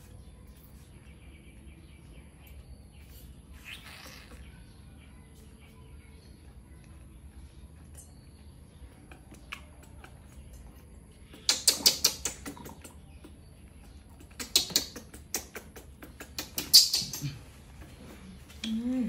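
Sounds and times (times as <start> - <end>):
monkeys clicking and smacking: 7.7 - 19.0.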